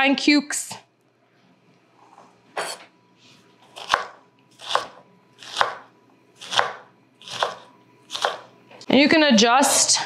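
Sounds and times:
knife chopping cucumber on wood: 3.8s - 5.8s, 6.4s - 8.5s.

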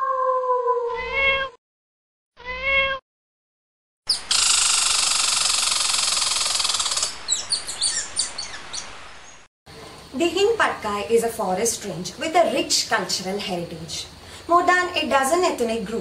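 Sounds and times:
cat meowing: 0.9s - 1.6s, 2.4s - 3.0s.

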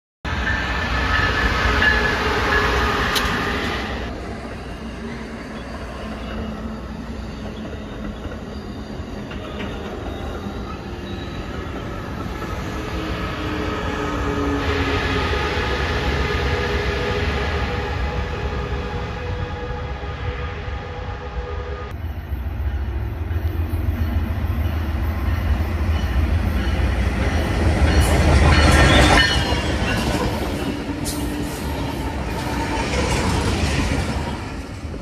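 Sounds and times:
diesel locomotive passing: 0.3s - 35.0s
train wheel and rail noise: 0.3s - 35.0s.

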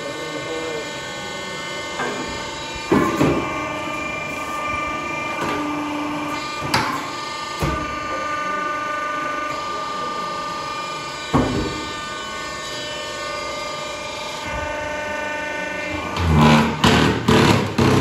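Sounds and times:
electric motor and pump humming: 0.0s - 18.0s.

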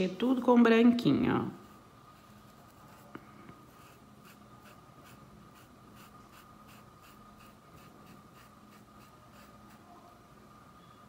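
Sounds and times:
paintbrush scrubbing cloth: 3.7s - 10.0s.

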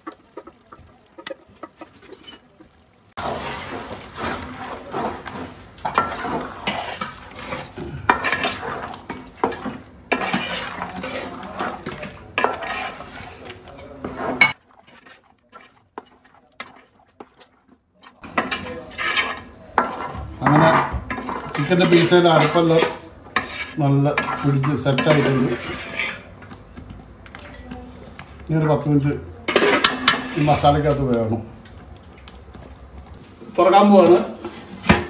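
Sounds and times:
metal spoon scraping pot: 0.0s - 26.5s, 29.5s - 30.9s.

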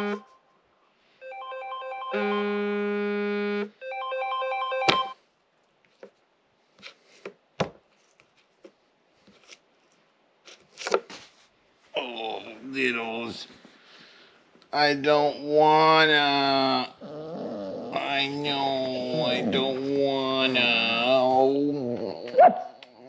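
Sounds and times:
phone alarm ringtone melody: 1.2s - 5.2s.

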